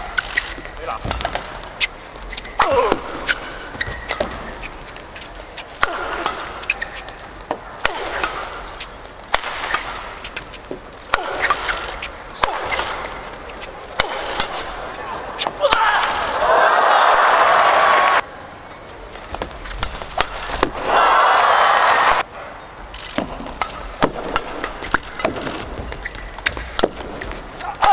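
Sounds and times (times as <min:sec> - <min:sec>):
shoes squeaking on floor: 0:00.0 - 0:07.6, 0:24.6 - 0:27.7
rackets striking shuttlecock: 0:00.0 - 0:16.4, 0:19.2 - 0:20.9, 0:23.0 - 0:27.9.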